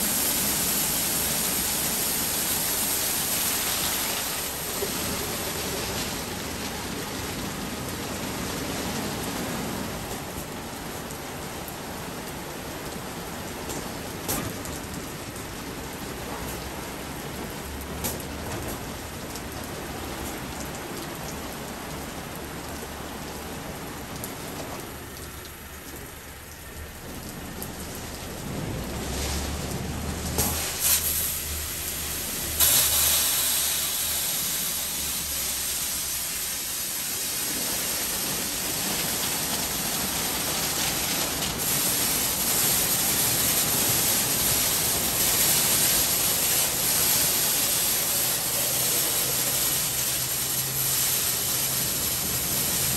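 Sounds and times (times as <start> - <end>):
car wash brushes and water spray: 0.0 - 10.0, 27.2 - 52.9.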